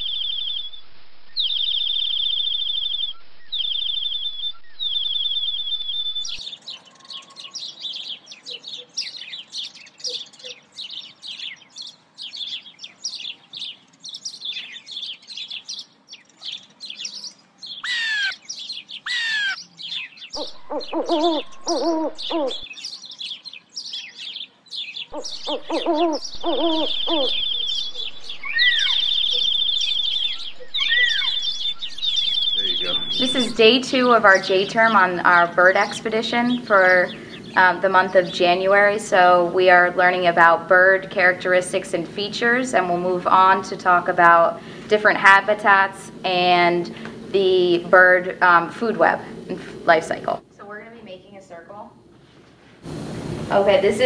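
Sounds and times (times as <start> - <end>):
falling bird whistles: 0.0 - 6.4, 26.2 - 33.6
lower bird calls: 0.0 - 38.9
high bird trill: 0.0 - 43.8
birds chirping: 0.0 - 52.2.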